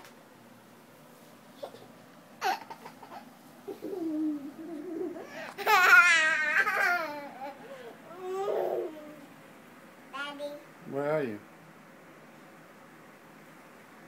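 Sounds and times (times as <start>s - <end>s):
child laughing: 1.6s - 7.6s
child babbling: 3.7s - 9.3s.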